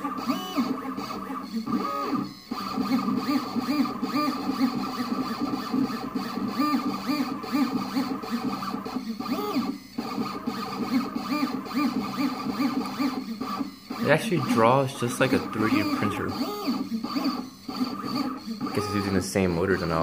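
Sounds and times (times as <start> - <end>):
stepper motors whining: 0.0 - 20.0.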